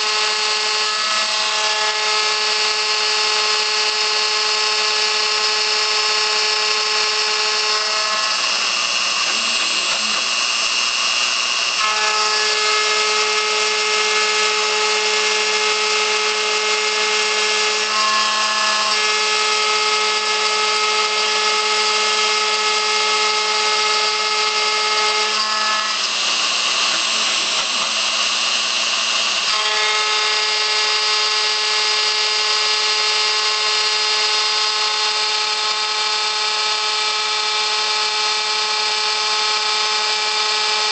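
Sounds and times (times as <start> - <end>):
harsh metal cutting noise: 0.0 - 40.9
router whining: 0.0 - 40.9.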